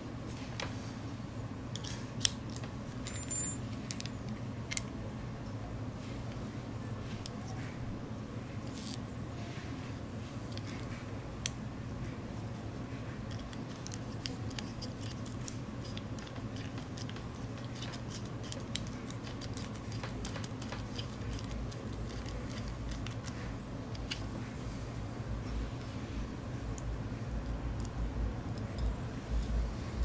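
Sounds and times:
steady low hum: 0.0 - 30.0
screwdriver clicks and scrapes: 13.3 - 24.3.

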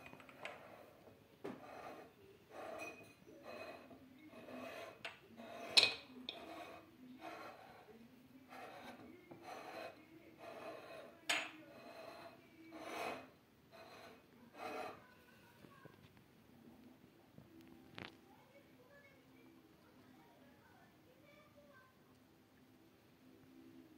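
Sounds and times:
ceramic plate scraping on countertop: 1.5 - 15.1.

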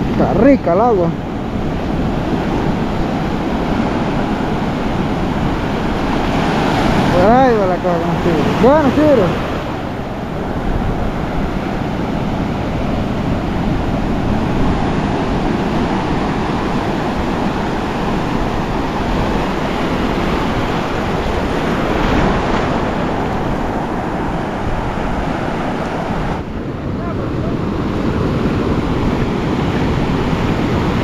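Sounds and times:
ocean surf breaking: 0.0 - 31.0
wind rumble on microphone: 0.0 - 31.0.

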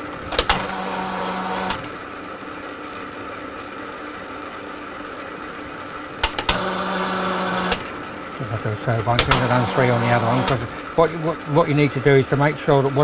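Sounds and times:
metal lathe humming: 0.0 - 2.1, 5.7 - 13.0.

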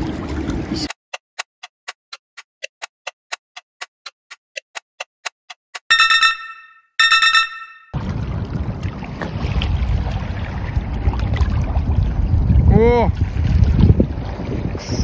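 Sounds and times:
bright chime: 5.9 - 7.9
water washing at river edge: 8.0 - 15.0
wind buffeting microphone: 8.0 - 15.0.

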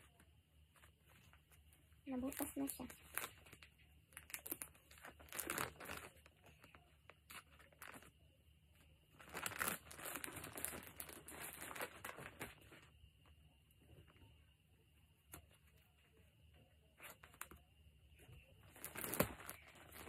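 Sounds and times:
plastic wrapping crinkling: 2.1 - 8.1, 9.1 - 12.9, 18.6 - 20.0.

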